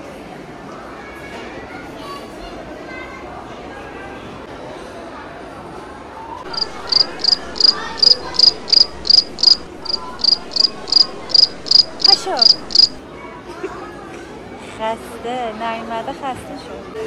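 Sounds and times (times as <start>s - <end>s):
cricket chirping: 6.5s - 13.0s.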